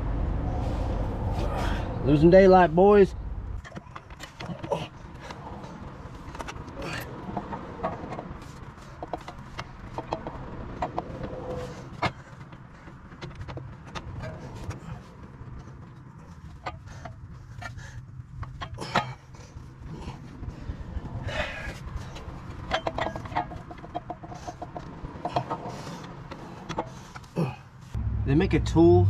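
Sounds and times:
metal parts clicking and knocking: 22.5 - 27.3.

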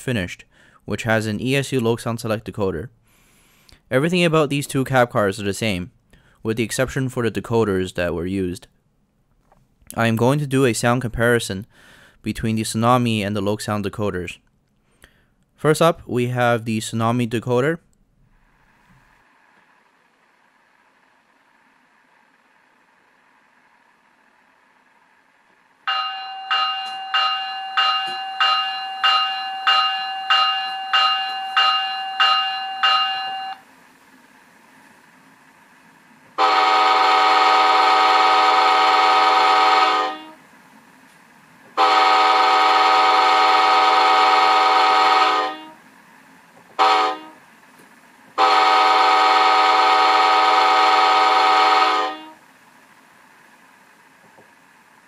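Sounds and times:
locomotive bell ringing: 25.9 - 33.6
train horn blasts: 36.4 - 40.4, 41.8 - 45.8, 46.8 - 47.5, 48.4 - 52.5.

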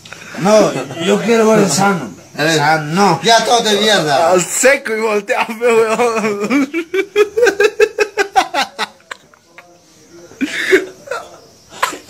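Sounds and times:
people laughing: 5.5 - 12.0.

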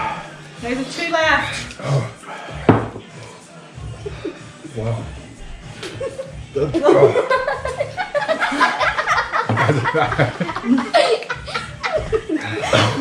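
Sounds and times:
people laughing: 3.9 - 5.0, 5.8 - 13.0.

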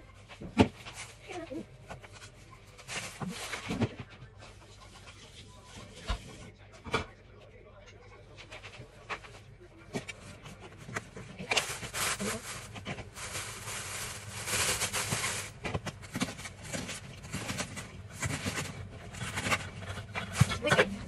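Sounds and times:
plastic bag rustling: 10.7 - 20.8
knife cutting cabbage: 13.3 - 21.0.

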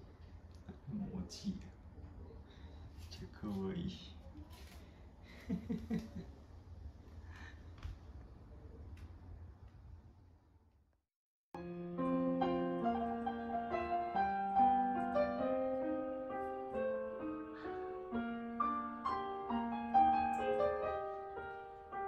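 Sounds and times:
piano music: 11.6 - 22.0.

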